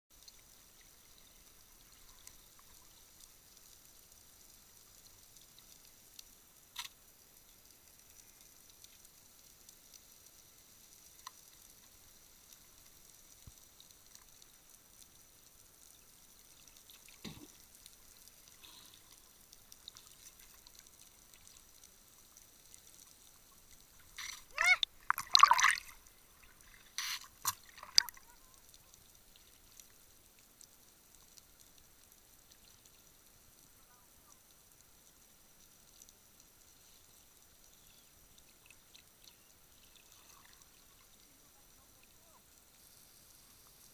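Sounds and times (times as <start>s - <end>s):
faint underwater hiss: 0.2s - 43.9s
underwater gurgling bubbles: 23.5s - 28.4s.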